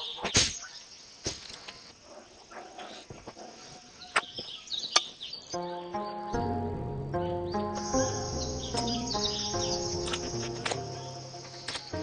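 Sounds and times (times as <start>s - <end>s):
birds chirping: 0.0s - 12.0s
sharp clicks: 10.0s - 12.0s.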